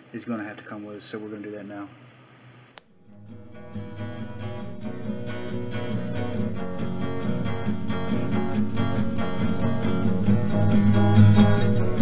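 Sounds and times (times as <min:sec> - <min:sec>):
strummed acoustic guitar: 0:03.0 - 0:12.0.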